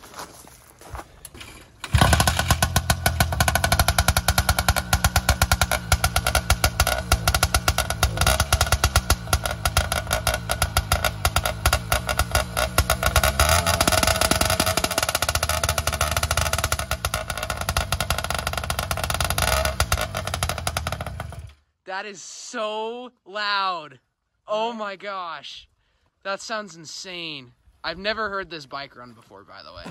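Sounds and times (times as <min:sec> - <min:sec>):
two-stroke engine popping: 0:01.8 - 0:21.6.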